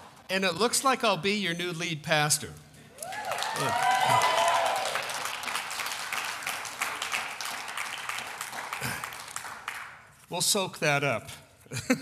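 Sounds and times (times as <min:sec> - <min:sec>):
congregation applauding: 0:02.9 - 0:10.2.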